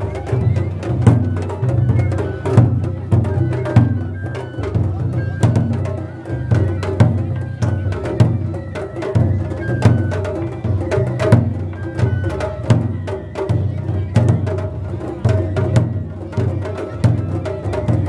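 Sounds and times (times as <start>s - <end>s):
large drum beaten steadily: 0.0s - 18.0s.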